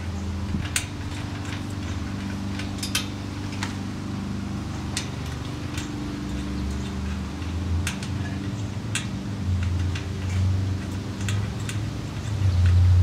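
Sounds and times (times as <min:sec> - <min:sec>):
steady low hum: 0:00.0 - 0:13.0
sharp metallic clicks: 0:04.6 - 0:13.0.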